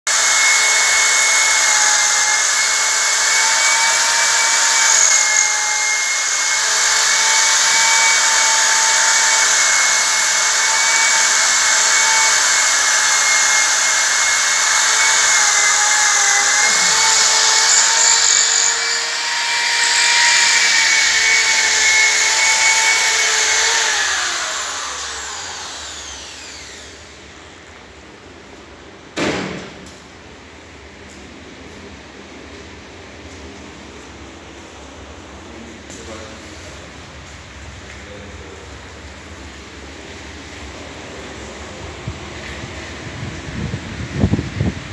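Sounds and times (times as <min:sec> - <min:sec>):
electric drill boring into tile: 0:00.1 - 0:27.2.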